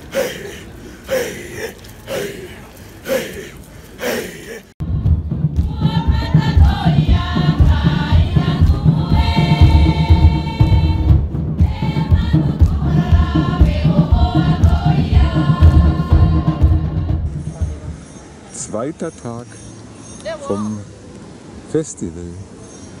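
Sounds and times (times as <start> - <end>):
group chanting and singing: 0.0 - 4.7, 5.4 - 17.9
rapid driving drumbeat: 4.8 - 18.1.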